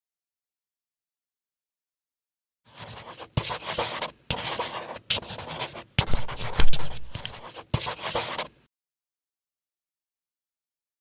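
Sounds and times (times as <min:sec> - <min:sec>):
marker pen scratchy strokes: 0:02.7 - 0:08.6.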